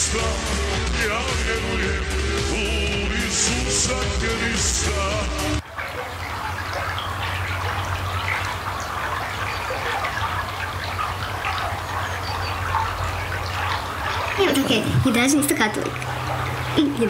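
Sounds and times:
rock music: 0:00.0 - 0:05.6
running water: 0:00.0 - 0:17.0.

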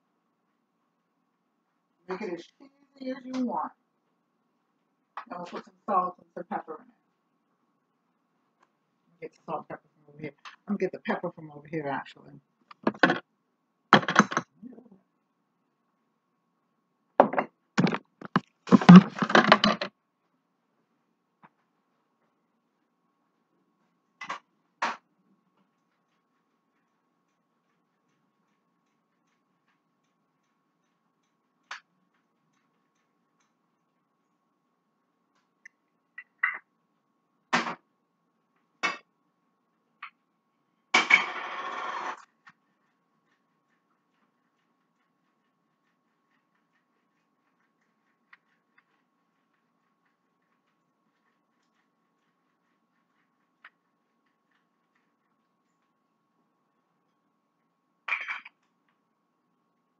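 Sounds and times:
kitchen items knocking and clattering: 0:12.7 - 0:13.2, 0:14.0 - 0:14.5, 0:17.2 - 0:19.9.

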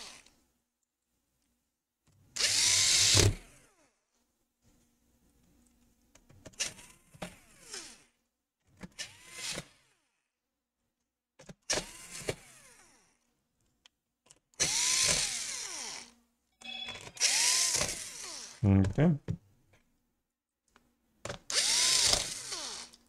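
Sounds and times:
electric screwdriver whirring: 0:00.0 - 0:00.3, 0:02.4 - 0:03.7, 0:11.7 - 0:13.0, 0:14.6 - 0:16.1, 0:17.0 - 0:18.6, 0:21.5 - 0:23.0.

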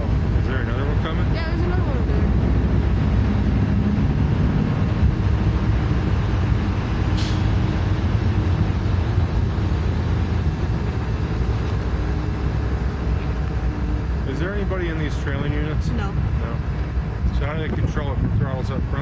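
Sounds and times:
train wheels rumbling on rails: 0:00.0 - 0:19.0
brief hiss: 0:07.2 - 0:07.6.

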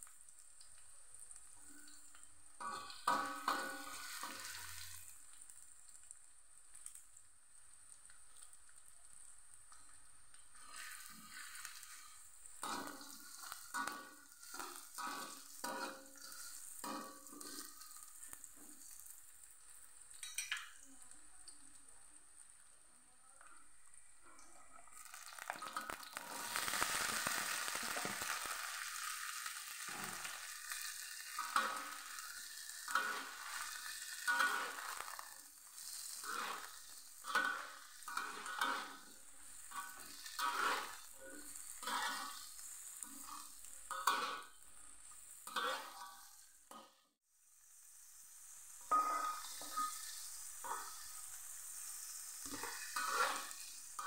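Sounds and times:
beans sizzling in hot oil: 0:00.0 - 0:54.0
metal spatula scraping wok: 0:02.6 - 0:05.1, 0:10.5 - 0:19.1, 0:25.4 - 0:46.9, 0:48.8 - 0:54.0.

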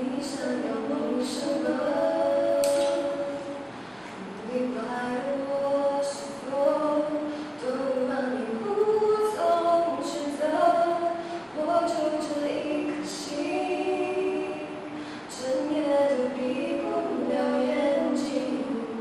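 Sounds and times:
women singing a cappella: 0:00.0 - 0:19.0.

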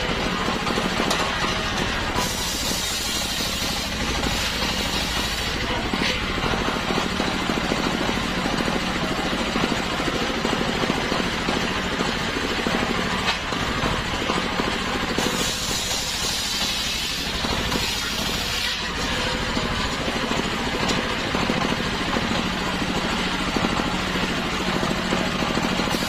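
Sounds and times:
circular saw cutting log: 0:00.0 - 0:08.0, 0:15.1 - 0:21.5, 0:25.6 - 0:26.0
stationary engine running: 0:00.0 - 0:26.0.

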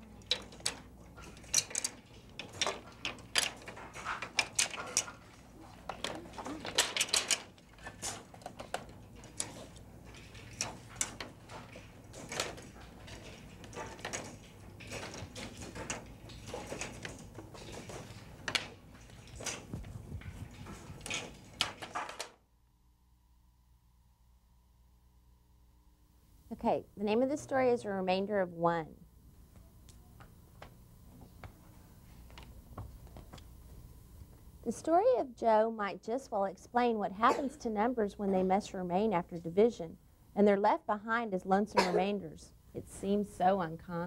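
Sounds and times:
plastic weights clicking and clattering: 0:00.0 - 0:22.4
low steady hum: 0:00.0 - 0:44.0.

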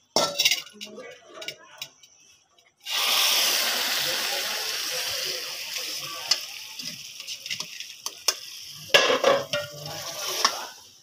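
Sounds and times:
food sizzling in a pot: 0:02.8 - 0:11.0
metal ladle scraping and knocking: 0:08.9 - 0:10.6.

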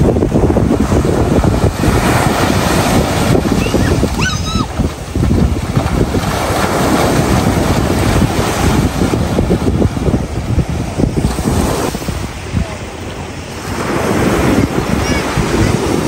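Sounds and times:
sea waves: 0:00.0 - 0:16.0
wind buffeting microphone: 0:00.0 - 0:16.0.

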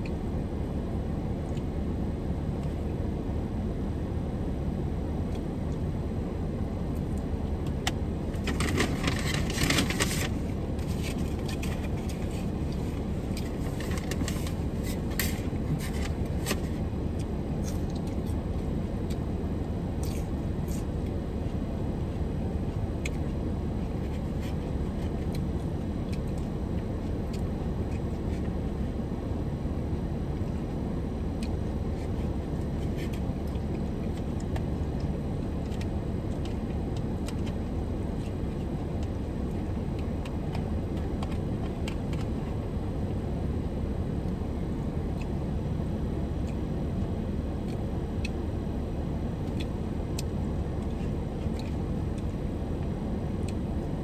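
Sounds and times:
low rumble inside car: 0:00.0 - 0:54.0
food packaging rustling: 0:08.4 - 0:16.7.

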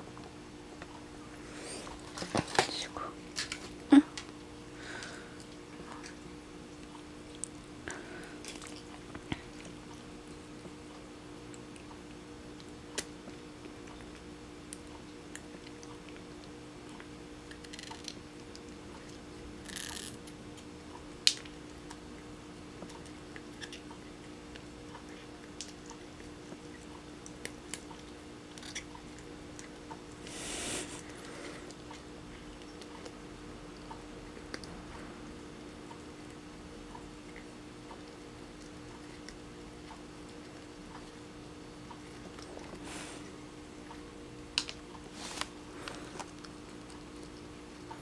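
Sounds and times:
steady low hum: 0:00.0 - 0:48.0
cat chewing a treat: 0:05.0 - 0:19.3, 0:21.4 - 0:34.9, 0:37.2 - 0:41.2, 0:41.8 - 0:44.0.

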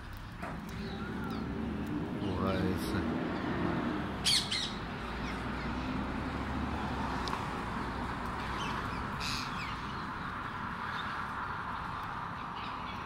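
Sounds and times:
parakeets screeching: 0:04.2 - 0:05.9, 0:08.6 - 0:10.0.

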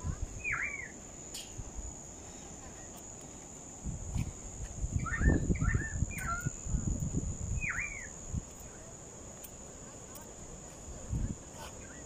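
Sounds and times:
high insect trill: 0:00.0 - 0:12.0
bird chirping calls: 0:00.4 - 0:01.0, 0:05.0 - 0:07.0, 0:07.6 - 0:08.8.

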